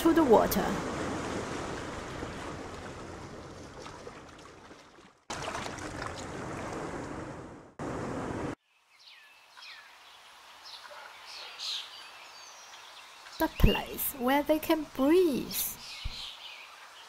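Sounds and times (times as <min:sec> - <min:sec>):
rushing splashing water: 0:00.0 - 0:08.6.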